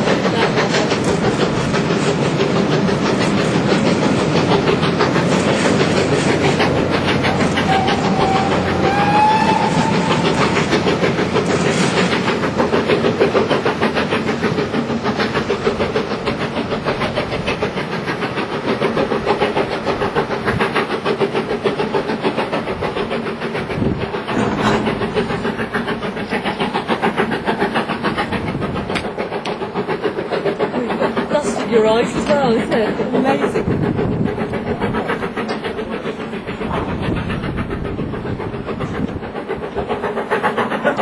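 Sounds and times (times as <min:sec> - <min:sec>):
train running noise: 0:00.0 - 0:41.0
steam locomotive whistle: 0:07.5 - 0:10.8.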